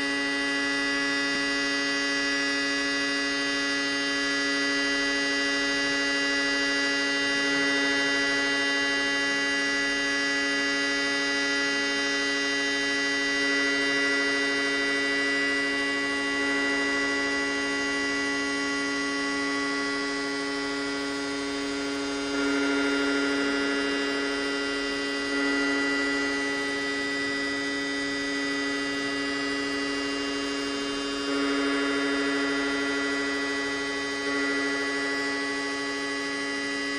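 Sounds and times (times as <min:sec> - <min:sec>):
dense electronic drone: 0:09.4 - 0:36.9.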